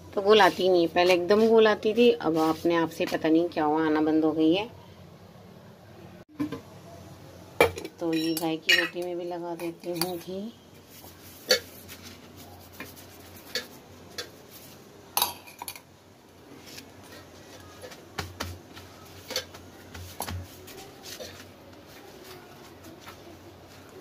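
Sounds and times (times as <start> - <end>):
metal spoon clinking on bowl: 7.8 - 10.2.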